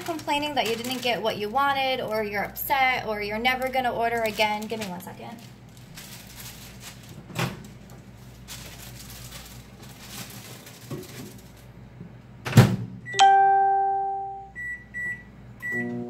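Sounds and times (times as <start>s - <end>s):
microwave chime: 13.1s - 16.0s.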